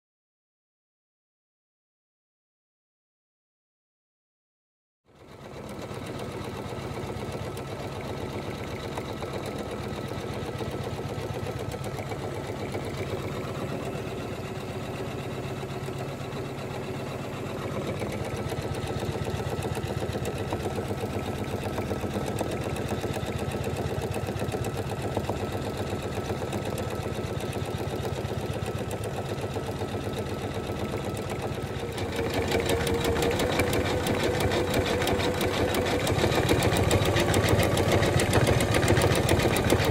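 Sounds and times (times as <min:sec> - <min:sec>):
embroidery machine needle patter: 0:17.6 - 0:39.9.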